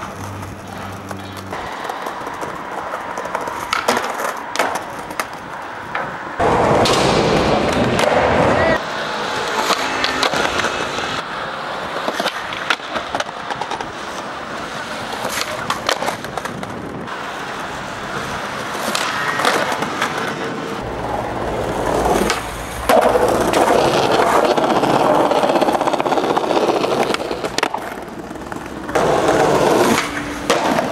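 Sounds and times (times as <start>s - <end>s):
skateboard tail popping and landing: 0.0s - 8.6s, 21.8s - 30.9s
skateboard wheels rolling on pavement: 0.0s - 30.9s.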